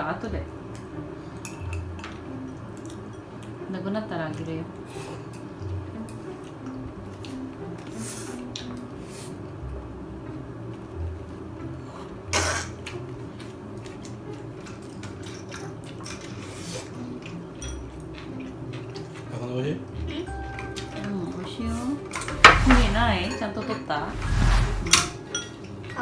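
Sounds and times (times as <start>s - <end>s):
cutlery clicking against plates: 1.4s - 3.6s, 12.8s - 16.5s, 17.2s - 19.3s, 25.2s - 26.0s
chewing clicks: 17.2s - 19.3s.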